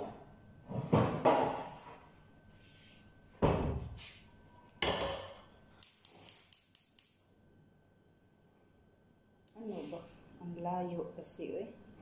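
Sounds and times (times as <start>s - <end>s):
sharp high ticks: 5.8s - 7.2s.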